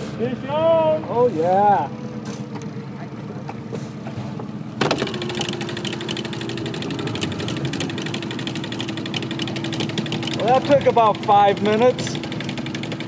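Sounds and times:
outboard motor running: 0:00.0 - 0:13.0
fast ticking: 0:05.2 - 0:13.0.

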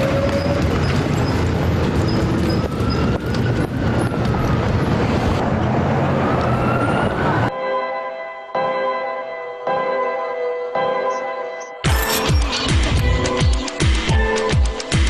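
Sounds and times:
soft music: 0:07.5 - 0:15.0.

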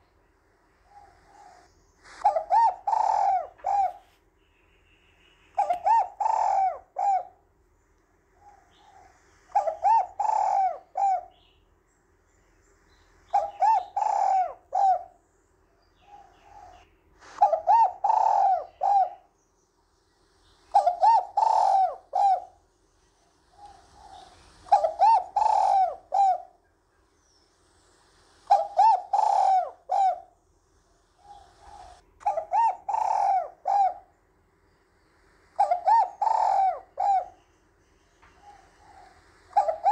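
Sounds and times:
dove cooing: 0:00.8 - 0:04.1, 0:05.6 - 0:07.4, 0:08.4 - 0:11.5, 0:13.3 - 0:15.2, 0:16.0 - 0:19.4, 0:20.7 - 0:22.6, 0:23.2 - 0:26.7, 0:28.5 - 0:30.4, 0:31.0 - 0:34.2, 0:35.6 - 0:37.5, 0:38.2 - 0:39.9.

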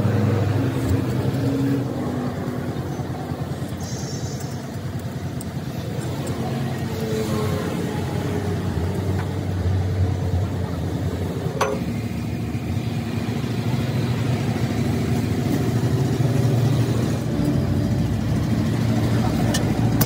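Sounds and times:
low engine rumble: 0:00.0 - 0:20.0.

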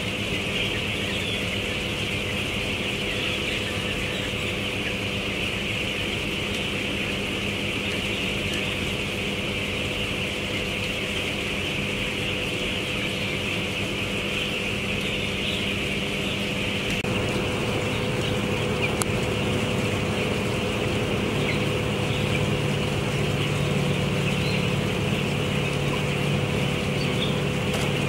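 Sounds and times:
chicks peeping: 0:00.0 - 0:28.0
ventilation fans humming: 0:00.0 - 0:28.0.

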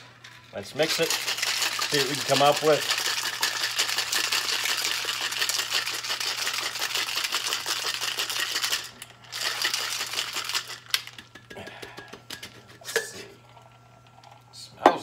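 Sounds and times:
ice rattling in cocktail shaker: 0:00.3 - 0:11.5.

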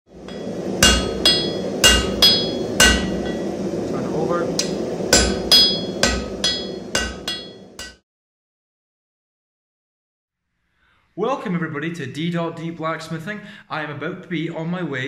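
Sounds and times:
steady low rush: 0:00.1 - 0:08.0
hammer ringing on anvil: 0:00.2 - 0:03.6, 0:04.6 - 0:08.0.

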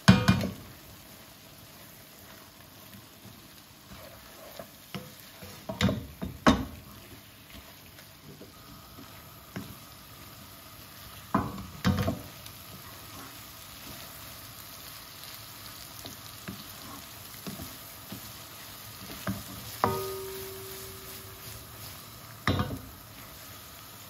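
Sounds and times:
curry sizzling in a pan: 0:00.0 - 0:24.0
spatula knocking against pan: 0:19.3 - 0:21.3.

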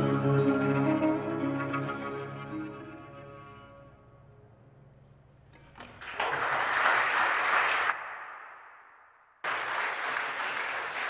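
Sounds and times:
strings playing: 0:00.0 - 0:04.8
audience applause: 0:05.8 - 0:08.6, 0:09.4 - 0:11.0.

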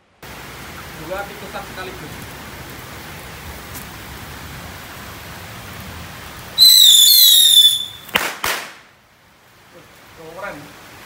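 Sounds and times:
rain hissing: 0:00.0 - 0:11.0
firecracker whistling: 0:06.6 - 0:08.8.

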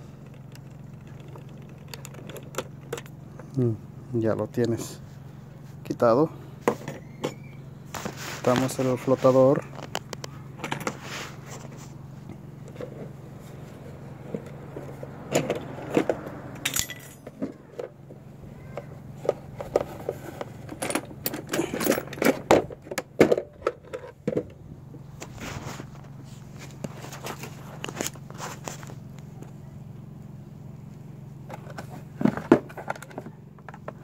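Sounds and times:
steady low hum: 0:00.0 - 0:34.0
plastic and metal parts rattling: 0:00.2 - 0:03.2, 0:18.7 - 0:24.6, 0:31.5 - 0:34.0.

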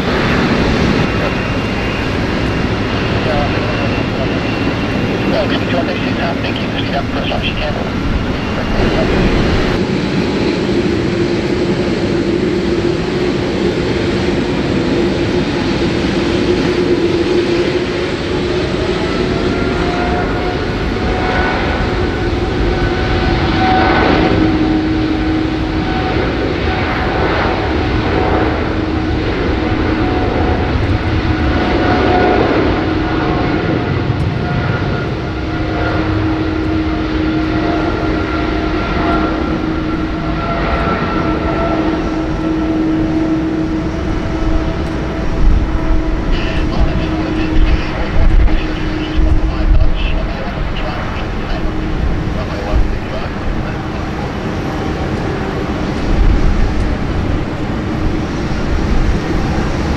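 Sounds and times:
airliner engines whining: 0:00.0 - 0:59.9.

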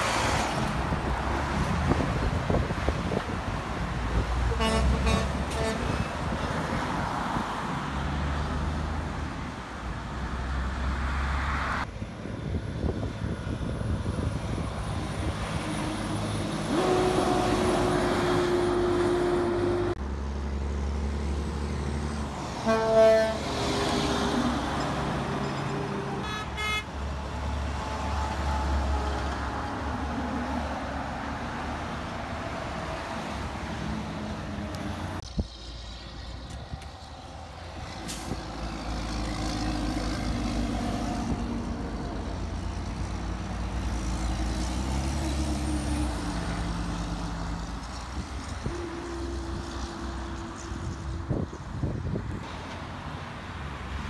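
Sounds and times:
dump truck engines rumbling: 0:00.0 - 0:54.0
truck horn blasts: 0:04.5 - 0:06.1, 0:16.7 - 0:20.0, 0:22.6 - 0:23.6, 0:26.2 - 0:26.9, 0:48.6 - 0:50.5.

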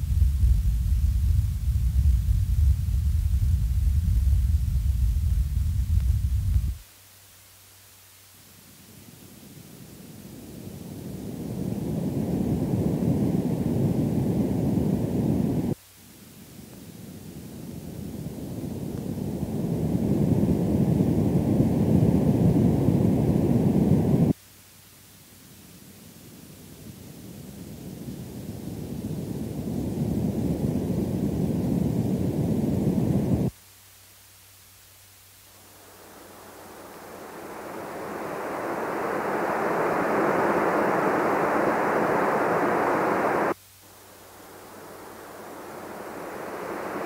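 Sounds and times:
bass noise test signal: 0:00.0 - 0:06.8, 0:35.8 - 0:43.6
faint film hiss: 0:00.0 - 0:47.0
band of test noise: 0:35.4 - 0:47.0.

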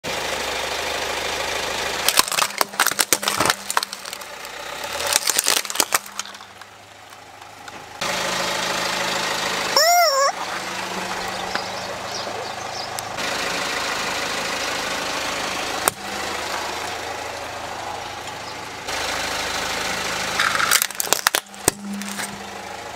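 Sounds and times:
car engine idling: 0:00.1 - 0:22.9
plastic toys cracking under tyre: 0:02.0 - 0:07.8, 0:20.4 - 0:22.3
rubber chicken toy squawk: 0:09.8 - 0:10.4.

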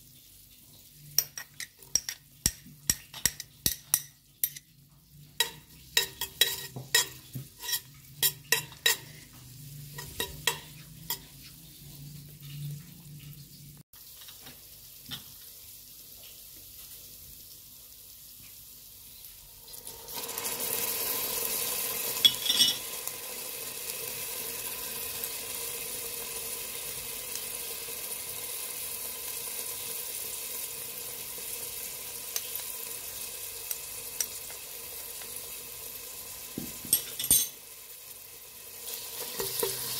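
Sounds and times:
chicken sizzling in hot oil: 0:00.0 - 0:39.9
spoon clicking against metal pot: 0:01.2 - 0:04.7.

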